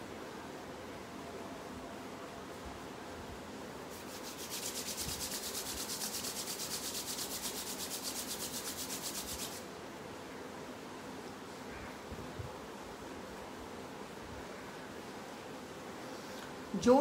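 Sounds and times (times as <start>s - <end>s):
palms rubbing together: 3.9s - 9.6s.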